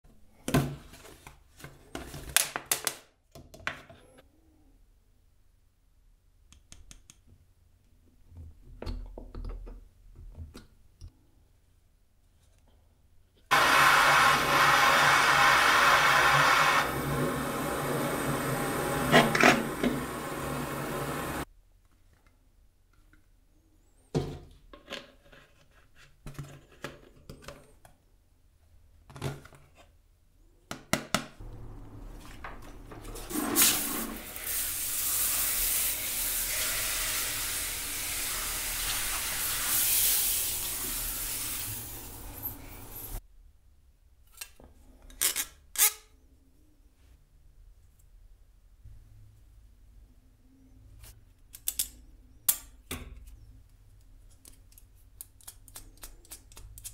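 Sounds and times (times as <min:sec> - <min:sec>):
gas torch hissing: 0:13.5 - 0:21.4, 0:33.2 - 0:43.2.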